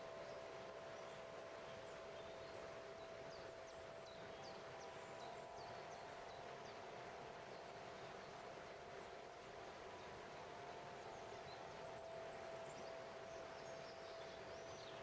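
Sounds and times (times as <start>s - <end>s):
waterfall hiss: 0.0s - 15.0s
bird chirping: 10.0s - 15.0s.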